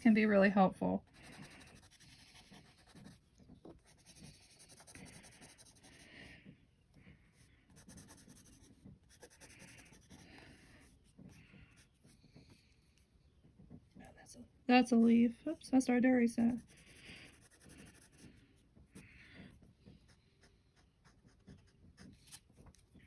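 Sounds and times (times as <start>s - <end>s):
pencil scratching on paper: 1.0s - 6.1s, 7.7s - 11.1s, 16.5s - 18.4s, 19.8s - 22.4s.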